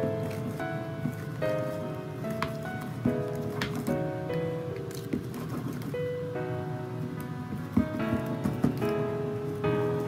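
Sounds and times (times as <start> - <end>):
instrumental music: 0.0 - 10.0.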